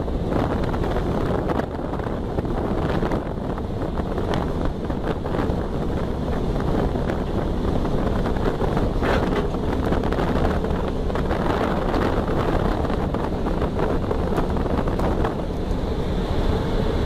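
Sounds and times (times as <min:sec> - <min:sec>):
car engine and road noise: 0:00.0 - 0:17.0
wind buffeting microphone: 0:00.0 - 0:17.0.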